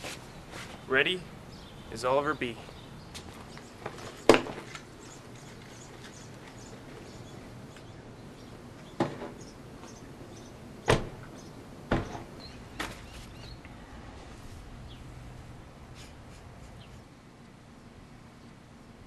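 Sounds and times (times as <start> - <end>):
car doors thumping shut: 8.9 - 9.5, 10.8 - 13.0.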